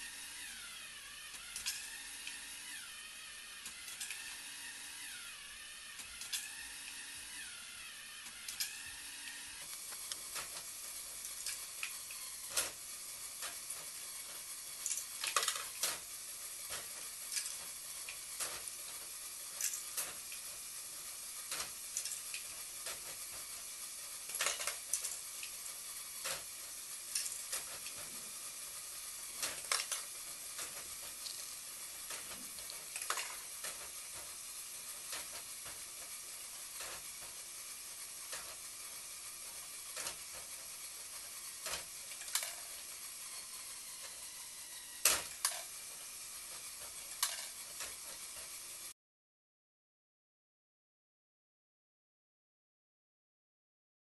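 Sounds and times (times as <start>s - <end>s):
electric motor and gears whining: 0.0s - 49.0s
plastic parts clicking and clattering: 1.3s - 2.4s, 6.0s - 6.6s, 13.4s - 20.6s, 21.5s - 23.5s, 24.3s - 26.5s, 27.1s - 28.3s, 29.3s - 37.4s, 39.4s - 44.3s, 44.9s - 48.6s.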